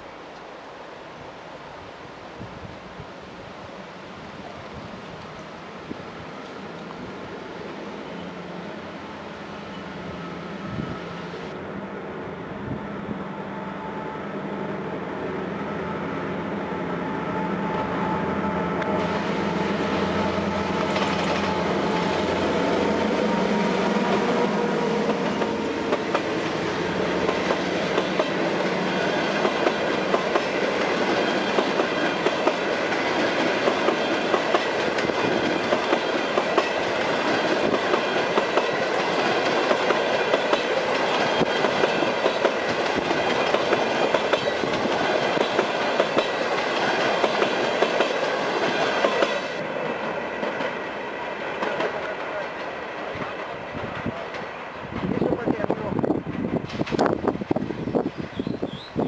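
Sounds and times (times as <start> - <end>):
diesel locomotive passing: 1.4 - 59.0
clickety-clack of train wheels: 20.7 - 22.3, 25.0 - 58.6.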